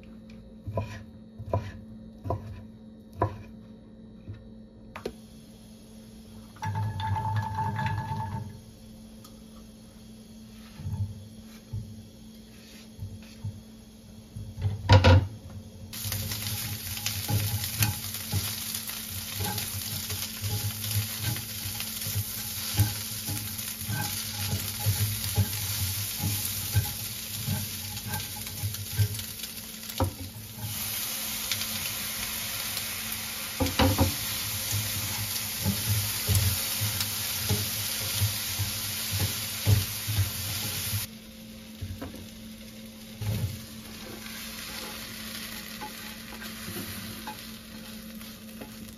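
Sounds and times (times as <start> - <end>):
spatula knocking and scraping pan: 0.6 - 3.6, 6.6 - 8.6, 10.5 - 11.9, 16.0 - 30.8, 33.6 - 41.1
food sizzling in a frying pan: 5.5 - 8.7, 10.5 - 48.9.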